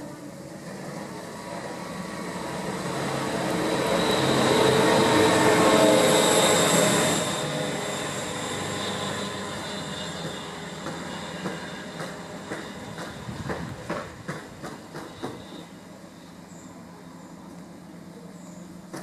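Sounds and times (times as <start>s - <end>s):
rail machine engine and wheels: 0.0s - 19.0s
high-pitched whine: 1.0s - 13.4s.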